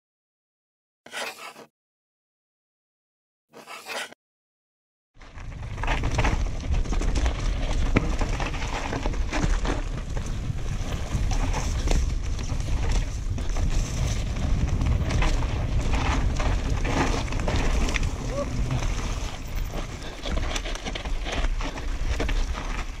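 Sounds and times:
wind buffeting microphone: 0:05.5 - 0:22.8
bike clicks and knocks: 0:05.6 - 0:23.0.

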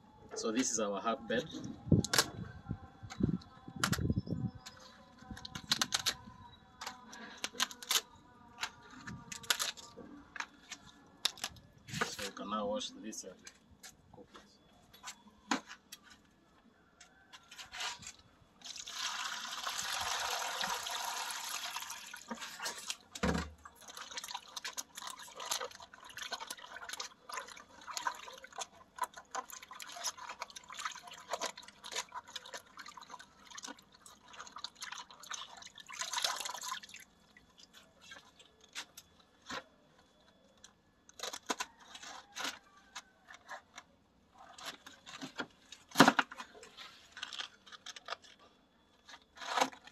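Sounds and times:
water pouring: 0:18.6 - 0:38.5
water splashes and drips: 0:18.6 - 0:38.6
hands sloshing water in basin: 0:23.8 - 0:38.5.

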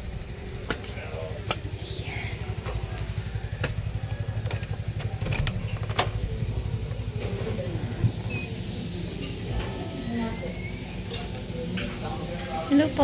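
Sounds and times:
engine idling: 0:00.0 - 0:10.0
sharp clicks and knocks: 0:04.4 - 0:06.2.

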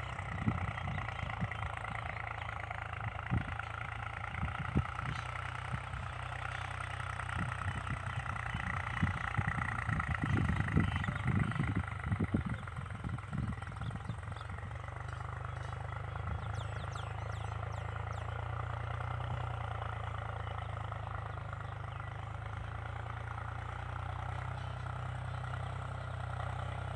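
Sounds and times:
low motor hum: 0:00.0 - 0:26.9.

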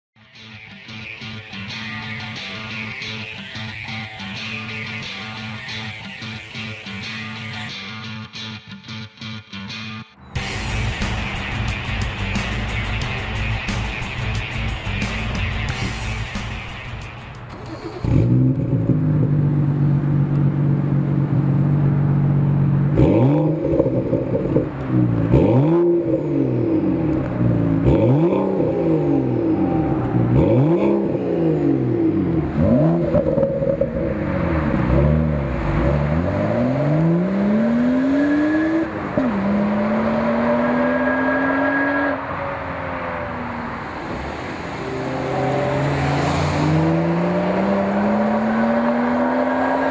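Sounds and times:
car engine revving and accelerating: 0:17.5 - 0:49.9.

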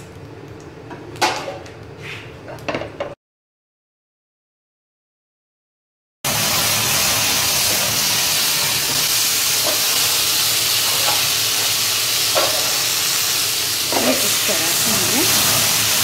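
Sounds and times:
food sizzling in a pan: 0:06.3 - 0:16.0.

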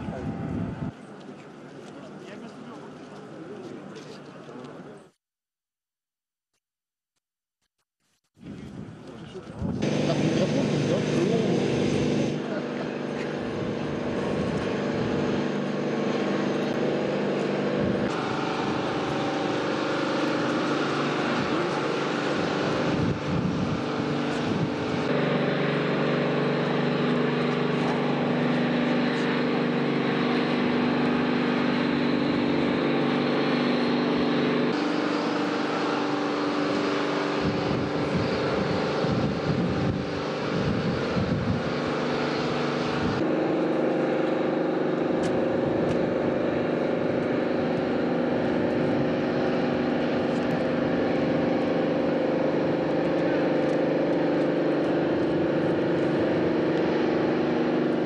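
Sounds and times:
wind buffeting microphone: 0:00.0 - 0:01.0, 0:08.4 - 0:10.2, 0:13.4 - 0:15.6, 0:20.9 - 0:25.1, 0:37.3 - 0:43.2
machinery droning: 0:09.8 - 0:58.0.

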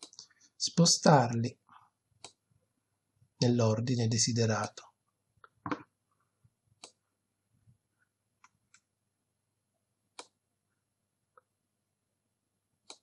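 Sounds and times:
computer mouse clicks: 0:02.2 - 0:02.4, 0:06.8 - 0:07.0, 0:10.1 - 0:10.4.

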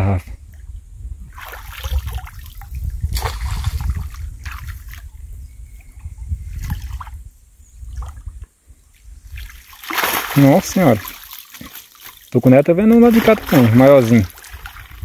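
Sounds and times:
water splashing and dripping: 0:01.3 - 0:05.2, 0:09.3 - 0:15.0
loud splashes: 0:09.4 - 0:12.2, 0:12.8 - 0:15.0.

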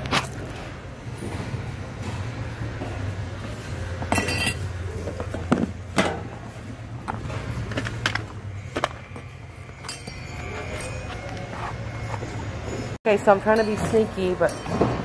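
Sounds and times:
hard goods clinking and knocking: 0:03.9 - 0:15.0.

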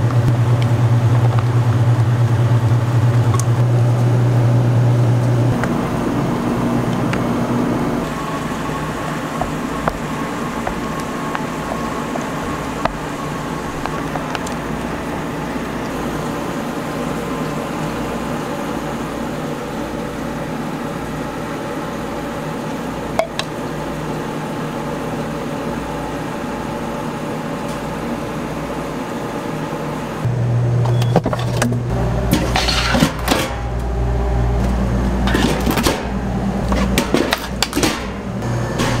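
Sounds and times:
deep loud hum: 0:00.0 - 0:39.0
machinery motor hum: 0:00.0 - 0:39.0
metal pans clinking: 0:32.3 - 0:33.6.

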